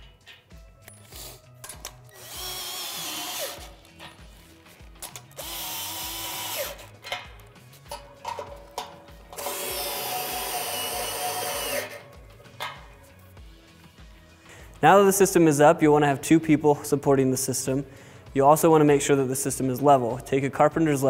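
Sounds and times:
soft background music: 0.0 - 21.0
cordless drill whining: 2.1 - 3.8, 5.3 - 6.9, 9.4 - 12.0
clicks of metal hardware: 7.0 - 9.4.

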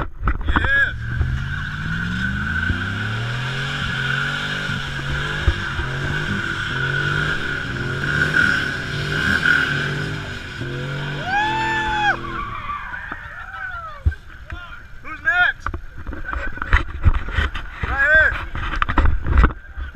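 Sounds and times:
tyres squealing: 0.6 - 14.0
truck engine revving: 0.8 - 12.7.

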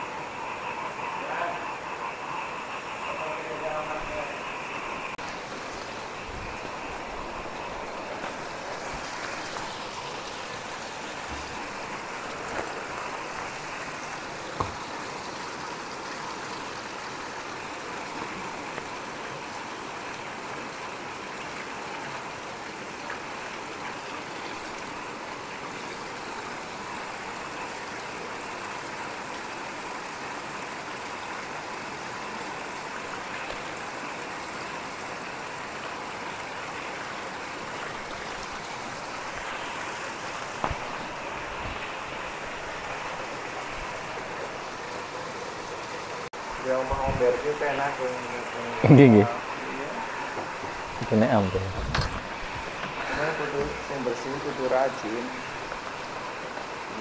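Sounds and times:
flowing water rushing: 0.0 - 57.0.

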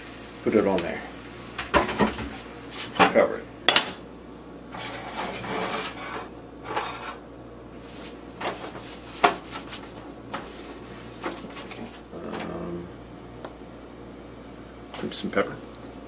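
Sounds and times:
pans knocking and scraping: 1.6 - 4.0, 4.7 - 7.2, 8.4 - 10.5.

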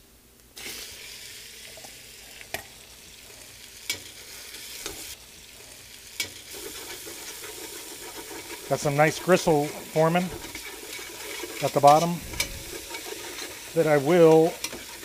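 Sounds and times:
chicken sizzling in hot oil: 0.6 - 15.0.

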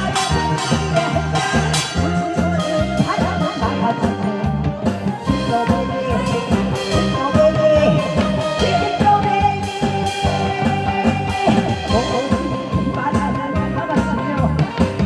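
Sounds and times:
trot music with steady beat: 0.0 - 15.0
woman singing into microphone: 5.2 - 14.7.

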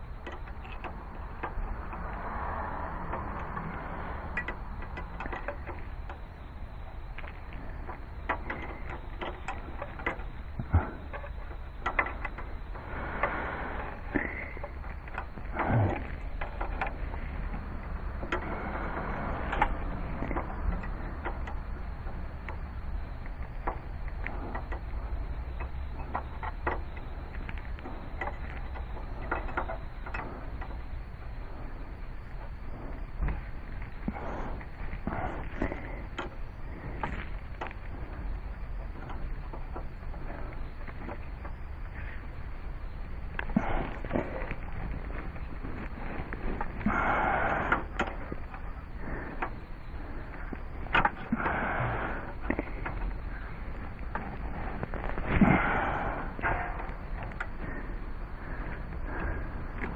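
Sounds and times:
steady low rumble: 0.0 - 59.9.

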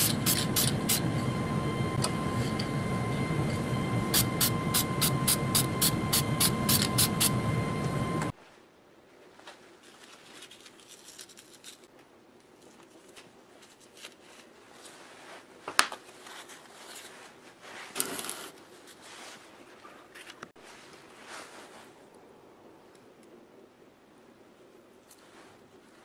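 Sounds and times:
scraping rustle: 9.3 - 22.1.

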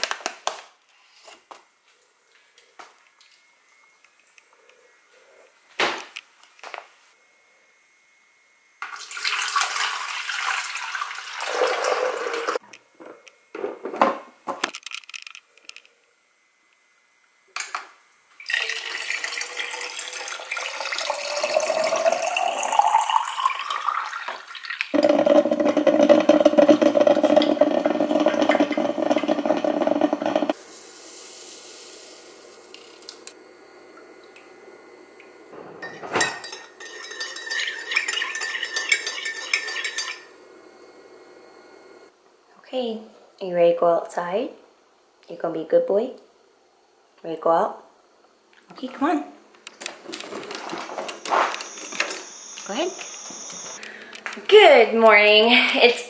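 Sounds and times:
appliance humming: 1.1 - 42.6, 48.0 - 56.0
water pouring: 8.9 - 12.6, 18.4 - 30.6, 36.8 - 40.2
water filling plastic tumbler: 18.4 - 30.6
spoon clinking in ceramic mug: 36.2 - 40.2.

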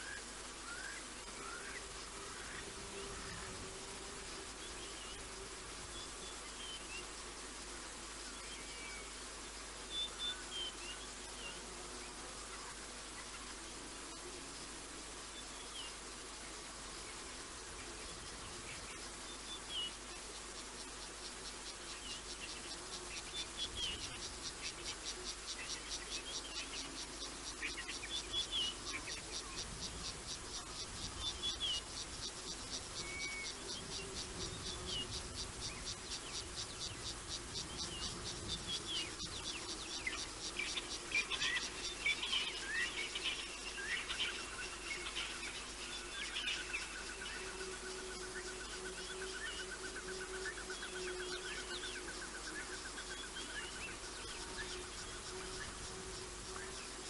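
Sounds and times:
insect trilling: 16.6 - 57.0
bird chirping: 21.6 - 55.8.

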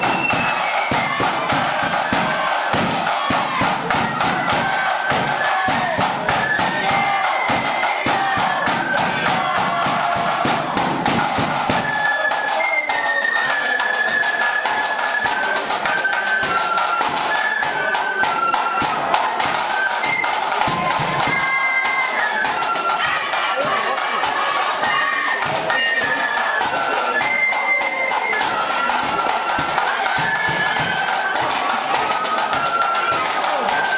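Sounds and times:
bass drum: 0.0 - 11.9
side drum strokes: 0.0 - 12.4
flutes playing melody: 0.0 - 33.9.

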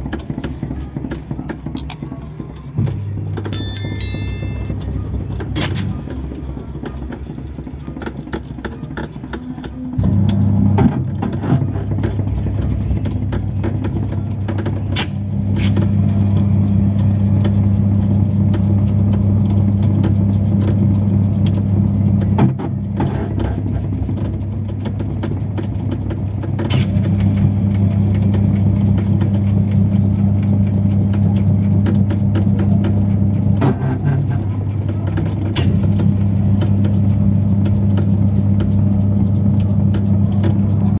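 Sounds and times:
sharp click: 1.8 - 2.0.

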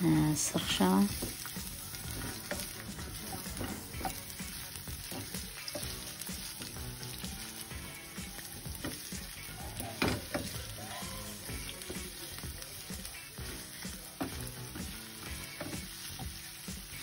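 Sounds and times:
onions sizzling in oil: 0.0 - 17.0
wooden spatula scraping pan: 0.6 - 6.8.

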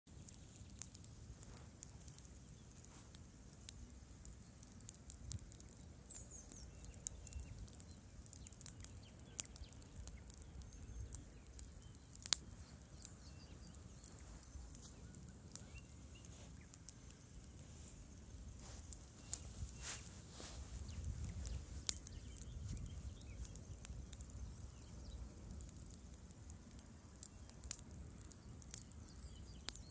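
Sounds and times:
campfire crackling and popping: 0.1 - 29.9.

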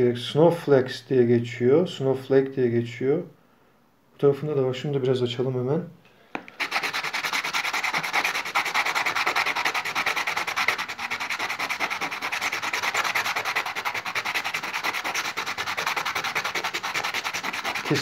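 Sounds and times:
stone rasping on wet sandpaper: 6.6 - 18.0.

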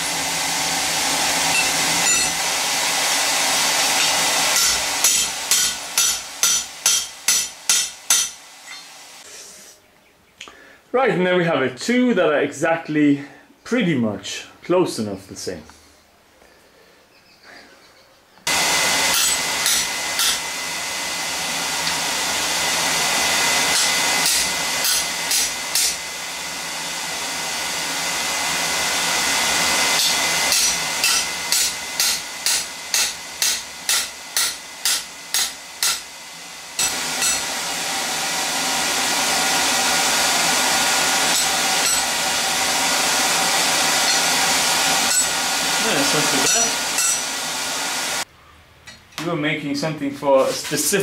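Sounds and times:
electric air blower running: 0.0 - 9.8, 18.4 - 48.3
hammer striking hot steel: 1.5 - 2.5, 4.0 - 8.9, 19.1 - 20.5, 23.6 - 26.0, 30.0 - 36.1, 36.8 - 37.5, 41.2 - 42.2, 44.0 - 44.4, 45.0 - 45.4, 46.4 - 47.3.

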